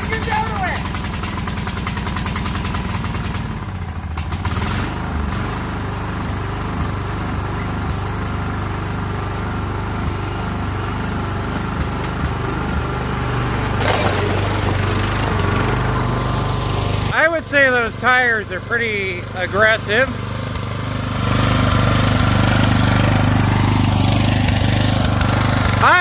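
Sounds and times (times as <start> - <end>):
mower clunk: 0.0 - 4.7, 9.5 - 17.2
mower engine running: 0.0 - 26.0.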